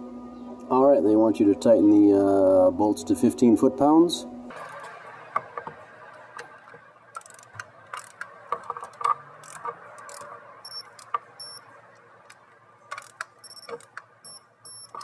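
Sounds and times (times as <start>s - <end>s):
socket wrench clicking: 7.2s - 11.6s, 12.3s - 15.0s.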